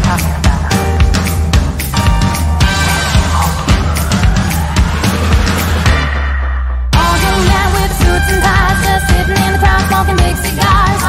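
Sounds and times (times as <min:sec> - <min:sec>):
music with drum beat and bass: 0:00.0 - 0:06.3, 0:06.9 - 0:11.0.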